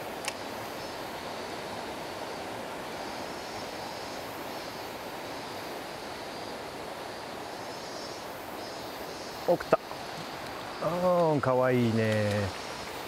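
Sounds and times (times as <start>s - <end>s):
stream water rushing: 0.0s - 13.0s.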